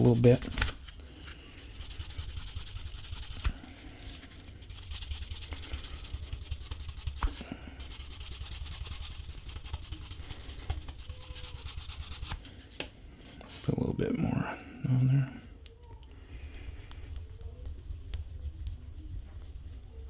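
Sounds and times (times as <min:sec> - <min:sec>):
cloth rubbing on leather: 0:01.6 - 0:12.4, 0:17.2 - 0:20.0.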